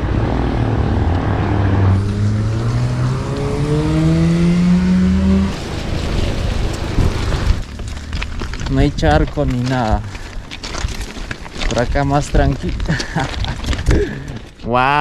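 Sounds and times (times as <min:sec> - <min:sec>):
vehicle engine accelerating: 0:00.0 - 0:07.7
steady rushing noise: 0:00.0 - 0:09.4.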